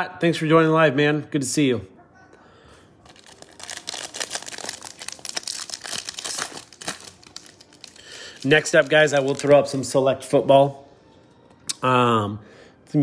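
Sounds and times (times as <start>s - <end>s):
foil wrapper tearing and crinkling: 3.0s - 9.6s.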